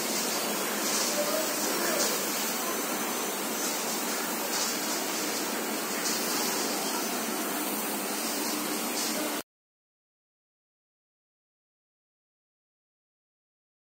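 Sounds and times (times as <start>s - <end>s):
textile machine running: 0.0s - 9.4s.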